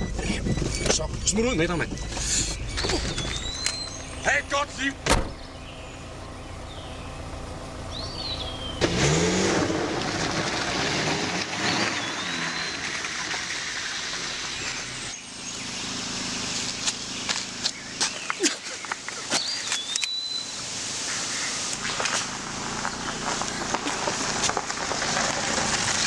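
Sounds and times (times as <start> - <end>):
bird chirps: 0.0 - 8.8, 12.0 - 12.9, 14.3 - 22.0
van engine revving: 0.0 - 26.0.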